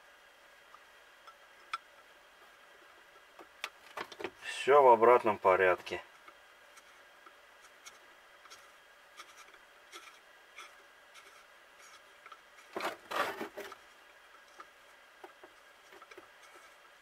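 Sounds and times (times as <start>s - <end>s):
small metal clicks and scrapes: 7.6s - 16.9s.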